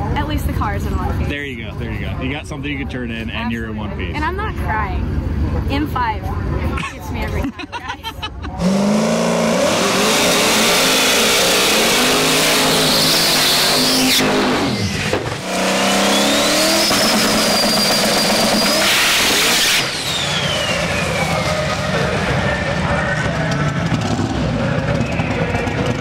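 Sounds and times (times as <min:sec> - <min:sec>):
high engine whine: 0:00.0 - 0:26.0
race car engine revving: 0:08.4 - 0:26.0.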